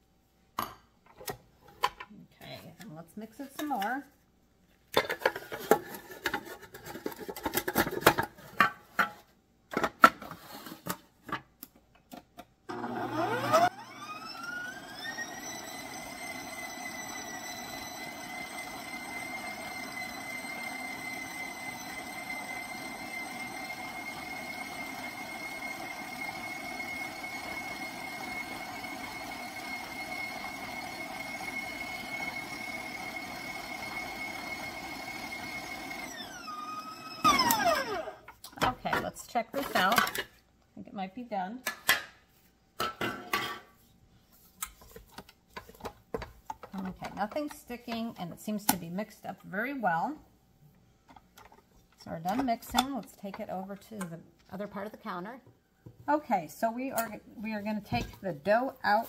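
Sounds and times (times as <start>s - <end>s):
beater mixing stiff dough: 12.7s - 38.2s
mixer motor whining: 12.7s - 38.3s.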